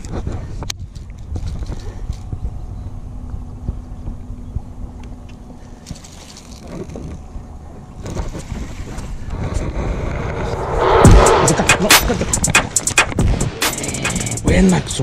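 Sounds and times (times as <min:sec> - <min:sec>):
wind buffeting microphone: 0:07.2 - 0:12.7.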